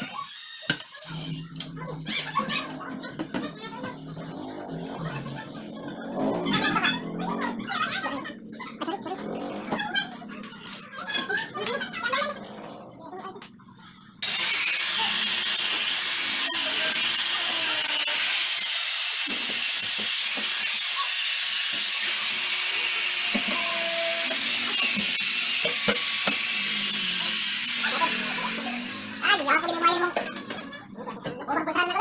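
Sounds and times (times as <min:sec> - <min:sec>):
power tool running: 0:14.2 - 0:30.6.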